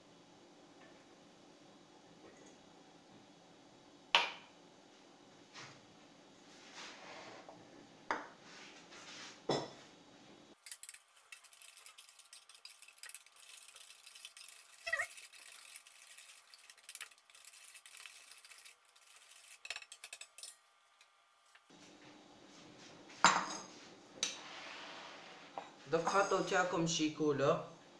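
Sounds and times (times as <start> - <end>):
whisk clicking against metal bowl: 10.6 - 20.5.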